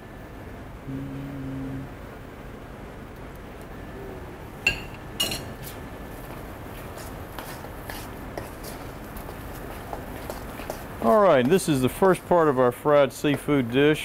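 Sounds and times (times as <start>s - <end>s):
metal spoon clinking bowl: 4.7s - 5.5s
spoon stirring batter: 5.6s - 12.6s.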